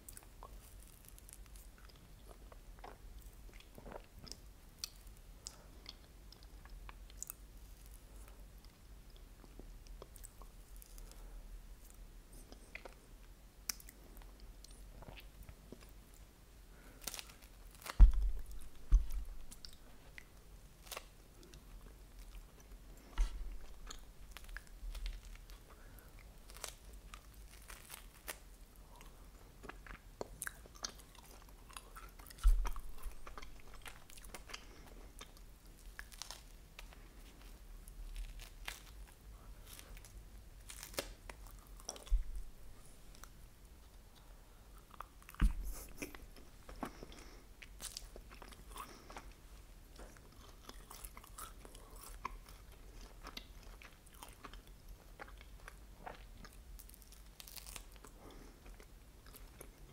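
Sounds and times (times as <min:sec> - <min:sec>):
crunching wafer cone chews: 0:16.8 - 0:43.3, 0:44.1 - 0:59.9
low thumps: 0:18.0 - 0:19.6.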